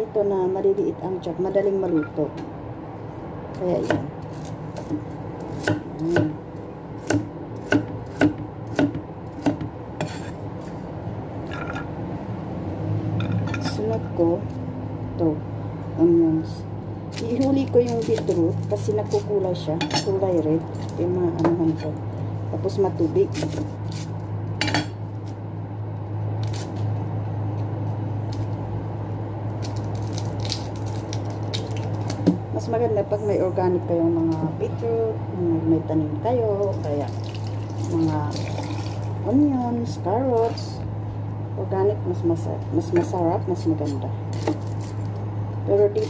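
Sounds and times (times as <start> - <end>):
steady low hum: 0.0 - 46.0
knife chopping on wooden board: 3.8 - 6.4, 7.0 - 10.4, 23.3 - 23.7
onion skin crackling: 17.1 - 21.4, 26.4 - 27.0, 29.5 - 32.3, 43.8 - 45.3.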